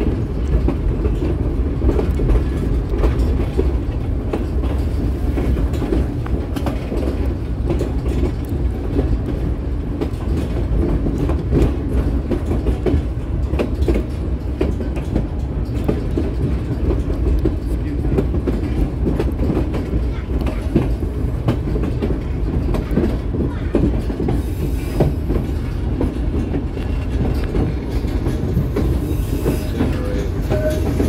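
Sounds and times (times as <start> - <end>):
clicks and knocks of rails: 0.0 - 24.4
train wheels rumbling on rails: 0.0 - 31.0.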